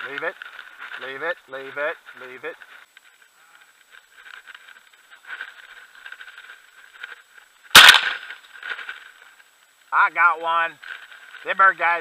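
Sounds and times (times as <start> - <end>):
faint rustling: 0.0 - 12.0
shotgun shot: 7.7 - 8.3.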